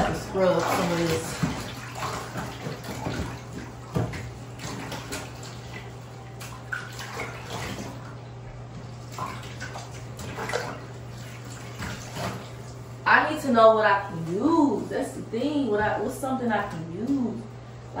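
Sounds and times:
small water splashes: 0.0s - 8.3s, 8.9s - 13.0s
hand sloshing in bathwater: 0.0s - 17.5s
steady low hum: 0.0s - 18.0s.

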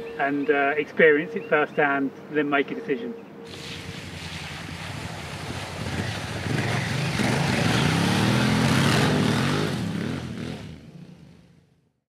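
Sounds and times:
tyre and spray noise: 3.5s - 9.6s
motorcycle engine revving: 3.5s - 11.8s.

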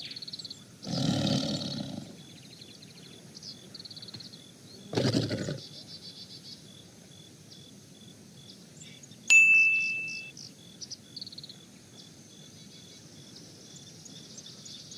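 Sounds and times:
insect and bird chirps: 0.0s - 14.9s
notification chime ding: 9.3s - 10.3s.

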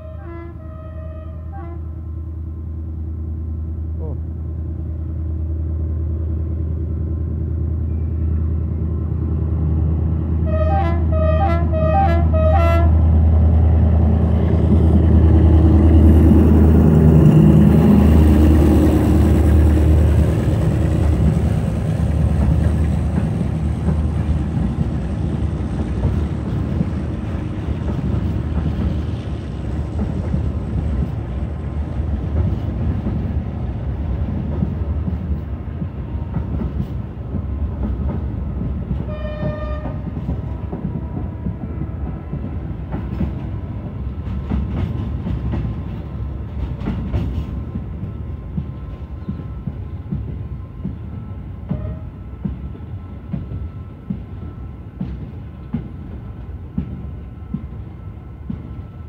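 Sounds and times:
train horn toots: 0.0s - 2.0s, 10.4s - 13.0s, 39.0s - 40.2s, 51.7s - 52.4s
freight wagons rumbling on rails: 3.9s - 59.0s.

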